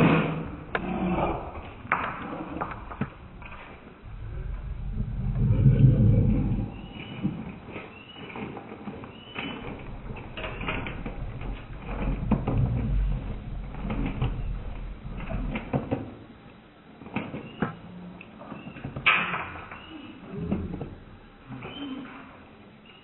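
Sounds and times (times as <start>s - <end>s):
low rumble: 0.3s - 7.8s, 9.6s - 16.3s.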